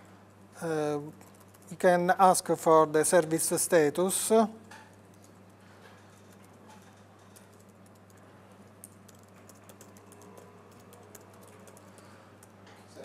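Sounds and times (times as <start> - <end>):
steady low hum: 0.0 - 13.0
typing on computer keyboard: 6.1 - 12.6.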